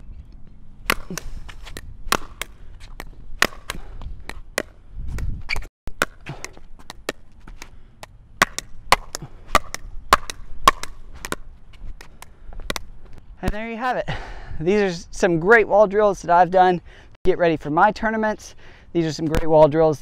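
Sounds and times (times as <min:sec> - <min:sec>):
ball rebounding off wall: 0:00.9 - 0:05.3, 0:08.4 - 0:11.5
paddle hitting ball pops: 0:00.9 - 0:05.3, 0:08.4 - 0:11.4, 0:12.7 - 0:12.9.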